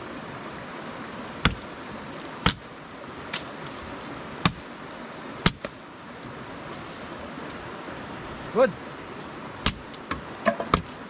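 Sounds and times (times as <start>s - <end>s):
axe chopping firewood: 1.4s - 1.7s, 2.4s - 2.7s, 4.4s - 4.7s, 5.4s - 5.8s, 9.6s - 11.0s.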